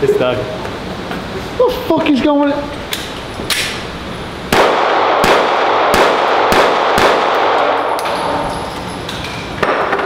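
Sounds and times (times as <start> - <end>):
handgun shots reverberating: 4.5 - 8.5.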